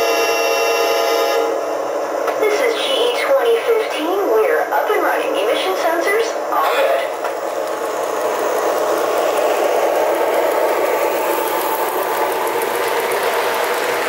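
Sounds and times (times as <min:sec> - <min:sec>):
model train wheels rattling: 0:07.4 - 0:14.0.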